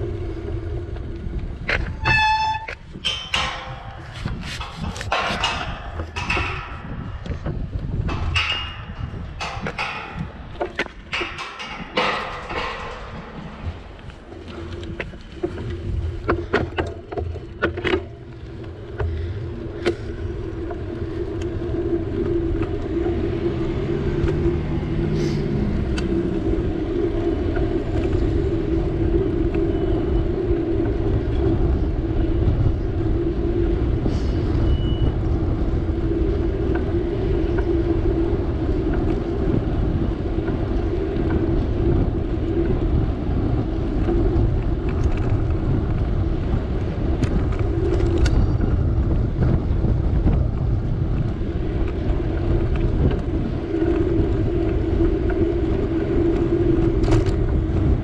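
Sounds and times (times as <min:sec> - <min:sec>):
wind on microphone: 0:00.0 - 0:58.0
sharp clicks and knocks: 0:01.0 - 0:21.6.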